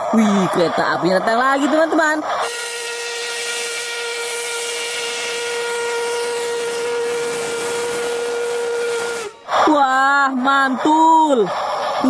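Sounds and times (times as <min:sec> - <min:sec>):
steam locomotive whistle: 0:01.5 - 0:10.2
steam hissing: 0:02.4 - 0:12.0.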